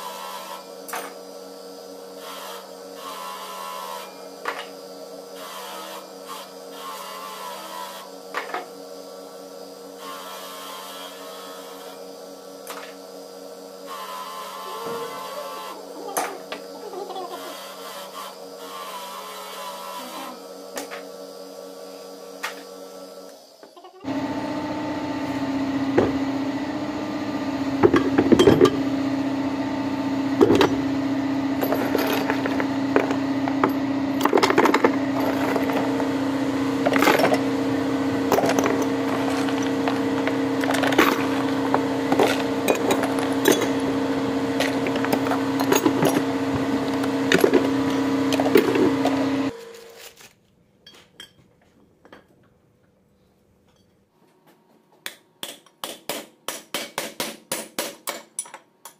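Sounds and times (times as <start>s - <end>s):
steady mechanical hum: 0.0s - 58.9s
metal parts clinking: 31.6s - 36.0s, 38.3s - 43.8s, 44.6s - 47.7s.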